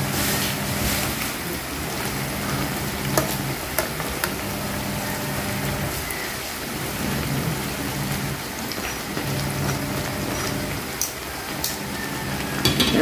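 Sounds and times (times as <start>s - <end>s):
fritters sizzling in oil: 0.0s - 13.0s.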